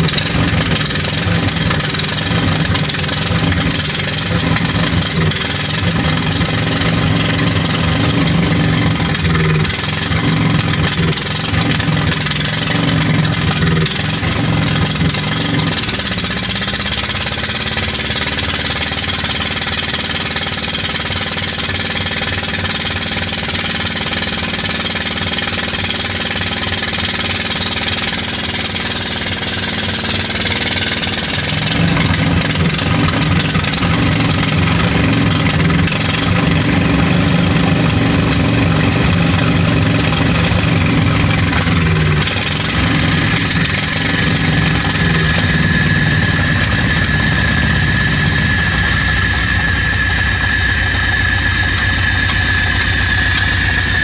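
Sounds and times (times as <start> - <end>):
diesel engine starting and running: 0.0 - 54.0
steady high tone: 29.8 - 54.0.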